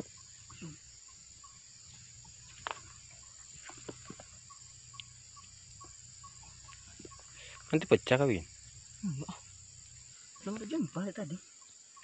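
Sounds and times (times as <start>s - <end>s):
high buzz of insects: 0.0s - 12.0s.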